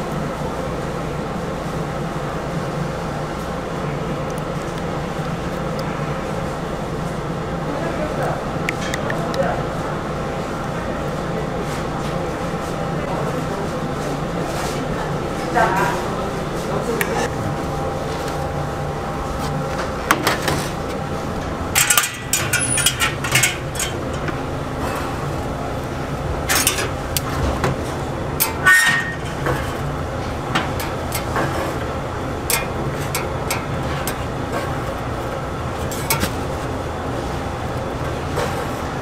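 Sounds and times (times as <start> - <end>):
steady background hum: 0.0 - 39.0
metal pans clanking: 21.8 - 25.2, 28.4 - 29.9.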